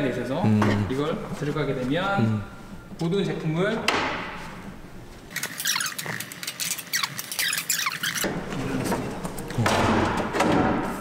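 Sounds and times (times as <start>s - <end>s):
short falling squeaks: 5.4s - 8.3s.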